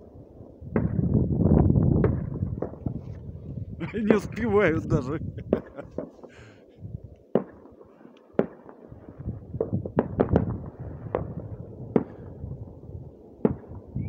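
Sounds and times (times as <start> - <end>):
fireworks bangs: 0.7 - 1.2, 1.8 - 3.1, 5.4 - 6.6, 7.3 - 14.0.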